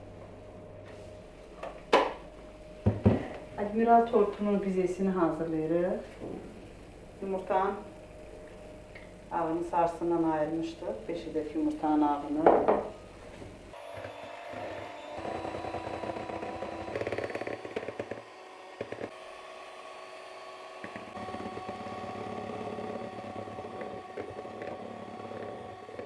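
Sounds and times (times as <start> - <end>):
hand mixer motor whine: 13.7 - 26.0.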